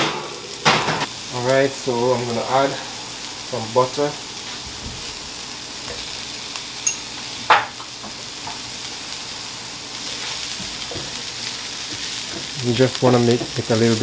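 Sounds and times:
mushrooms sizzling in oil: 0.0s - 14.0s
small clink: 6.8s - 7.1s.

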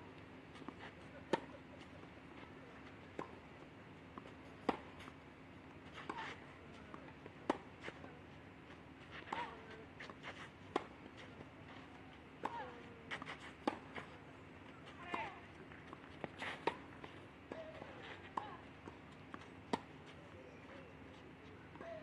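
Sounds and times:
racket hitting tennis ball: 4.2s - 5.2s, 5.8s - 8.0s, 9.1s - 14.2s, 15.0s - 20.0s.

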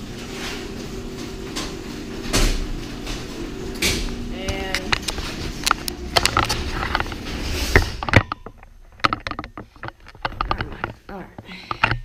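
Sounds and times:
clattering knocks and clicks: 0.2s - 12.0s
low rumble: 0.6s - 9.0s.

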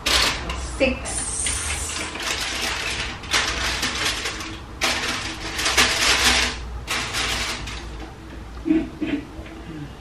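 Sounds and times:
aluminium foil crinkling: 1.3s - 8.0s.

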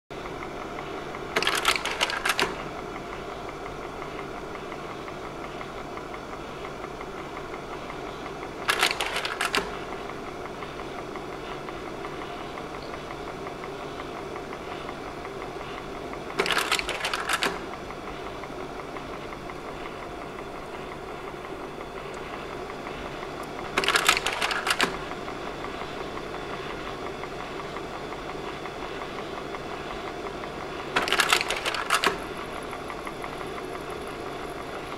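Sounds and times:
projector fan hum: 0.1s - 34.9s
slide-change mechanism clattering: 8.6s - 9.8s, 16.3s - 17.7s, 23.4s - 25.1s, 30.9s - 32.7s.

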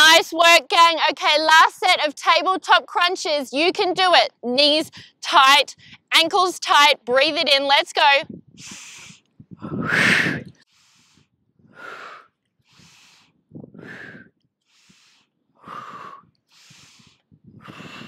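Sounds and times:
woman breathing hard: 8.6s - 18.0s.

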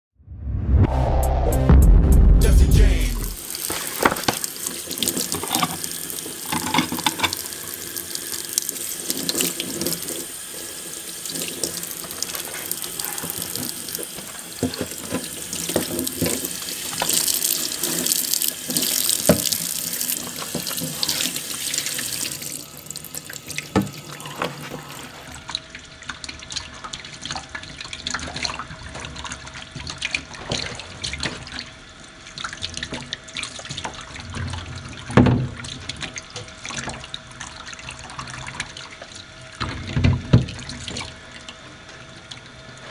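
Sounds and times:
tap running into steel sink: 13.6s - 21.3s, 23.6s - 24.5s.

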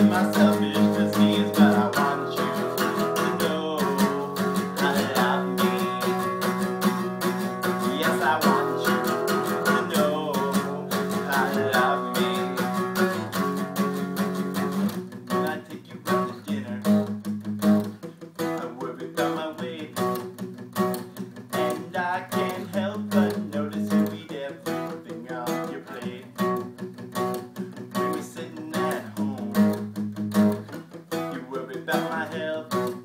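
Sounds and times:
man singing: 0.0s - 13.5s, 15.3s - 17.2s, 18.4s - 20.2s, 21.5s - 26.6s, 27.9s - 29.9s, 31.1s - 33.0s
acoustic guitar strumming: 0.0s - 33.0s.

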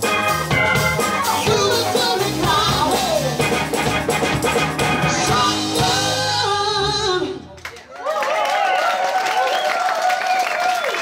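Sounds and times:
live band playing: 0.0s - 7.6s
person singing: 0.2s - 3.9s, 4.9s - 7.5s.

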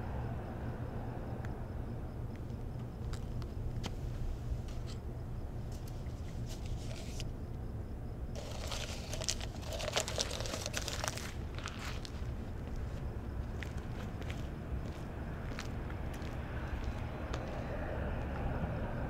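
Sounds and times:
low steady hum: 0.0s - 19.0s
paper cup crinkling: 5.8s - 7.2s, 8.4s - 12.8s.

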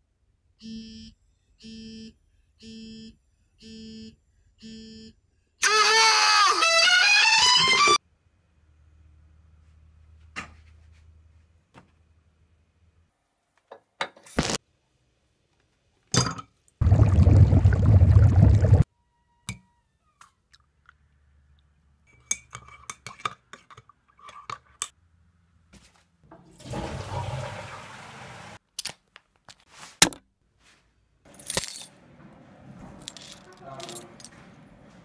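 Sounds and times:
water bubbling around immersion heater: 16.8s - 18.8s.

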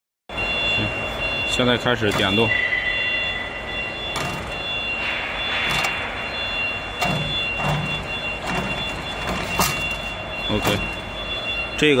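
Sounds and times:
machine humming with high whine: 0.3s - 12.0s
machine clanking: 4.0s - 11.0s.

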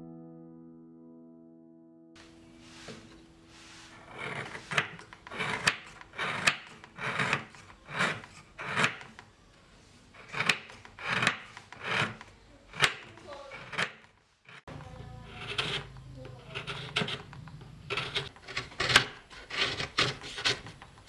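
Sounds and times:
knife scraping sugar block: 3.8s - 9.3s, 10.0s - 21.0s
blade clicking on wooden board: 4.2s - 9.3s, 10.2s - 21.0s.

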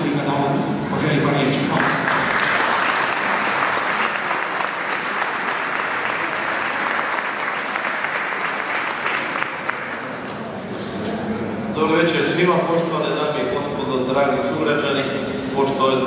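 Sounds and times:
audience applauding: 1.7s - 10.4s.

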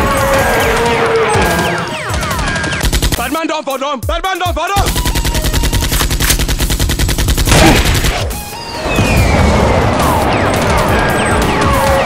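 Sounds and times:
automatic gunfire: 4.8s - 8.3s
falling whistling tones: 8.6s - 11.4s
explosion blast: 8.8s - 12.0s
rumbling crackling aftermath: 8.8s - 12.0s.

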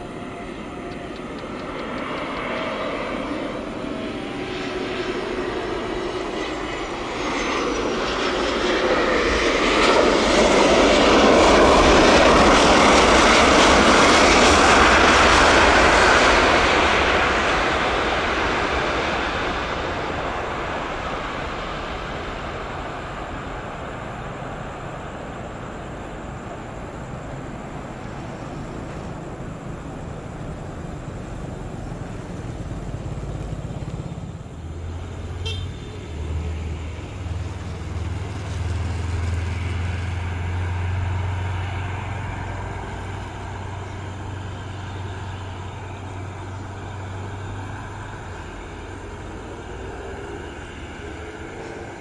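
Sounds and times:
outdoor traffic noise: 0.0s - 52.0s.

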